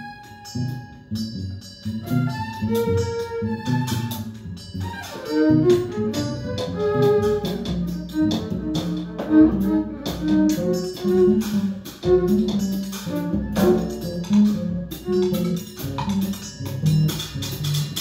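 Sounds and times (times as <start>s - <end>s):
bowed violin: 0.0s - 18.0s
drum kit: 0.0s - 18.0s
sharp percussion hits: 6.0s - 18.0s.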